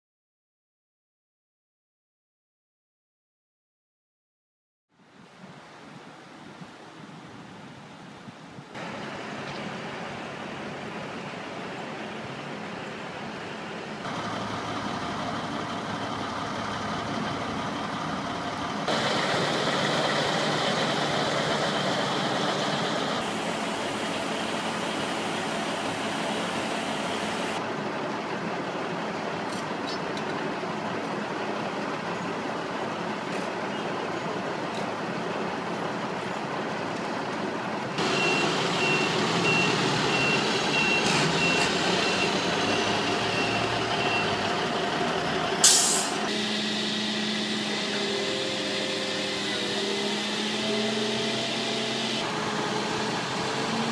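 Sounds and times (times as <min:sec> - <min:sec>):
diesel truck engines: 0:08.8 - 0:53.9
reversing alarm beeping: 0:38.0 - 0:44.4.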